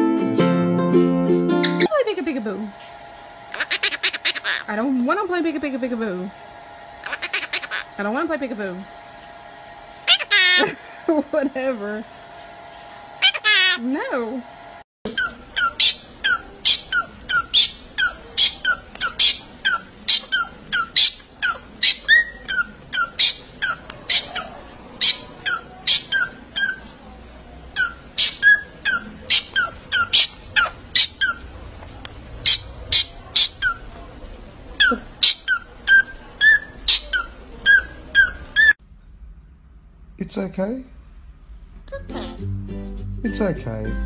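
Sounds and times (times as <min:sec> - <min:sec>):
parrot chirping: 0:03.5 - 0:04.8, 0:07.0 - 0:08.1, 0:10.0 - 0:11.0, 0:13.1 - 0:13.8, 0:15.1 - 0:27.0, 0:27.7 - 0:31.5, 0:32.4 - 0:33.9, 0:34.8 - 0:38.8.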